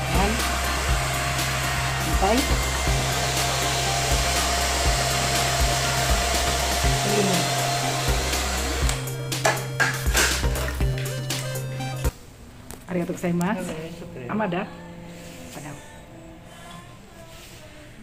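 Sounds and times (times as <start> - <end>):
hair dryer blowing: 0.0 - 11.7.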